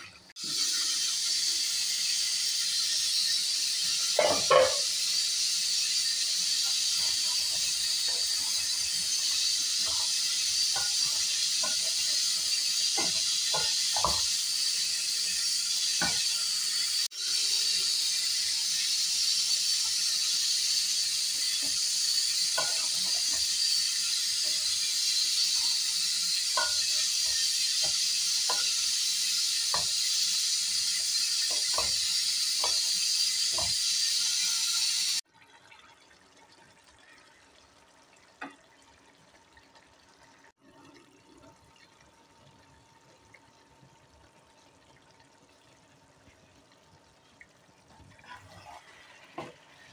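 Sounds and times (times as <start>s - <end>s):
food sizzling in a pot: 0.0s - 35.3s, 44.1s - 49.9s
spatula scraping a pot: 21.4s - 34.8s, 48.2s - 49.9s.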